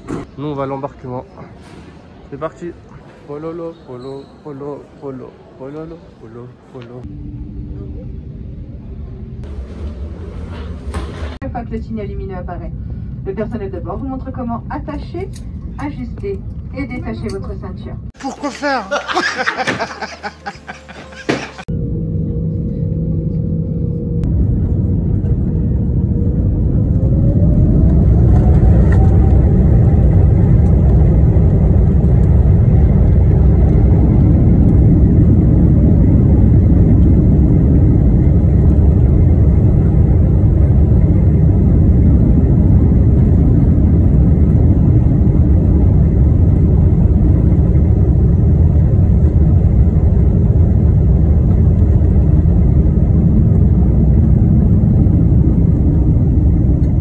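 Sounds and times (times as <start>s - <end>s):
engine rumble: 19.0s - 57.0s
jet engines spooling up: 19.3s - 57.0s.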